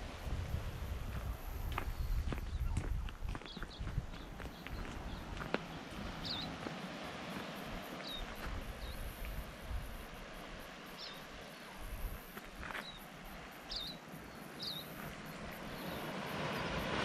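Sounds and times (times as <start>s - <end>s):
wind buffeting microphone: 0.0s - 6.7s
wind hiss: 0.0s - 17.0s.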